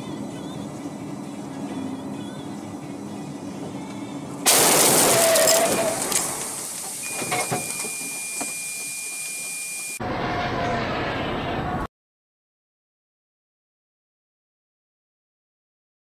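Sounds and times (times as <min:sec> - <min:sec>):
windshield shattering: 0:04.4 - 0:08.1
thin high tone: 0:07.0 - 0:10.0.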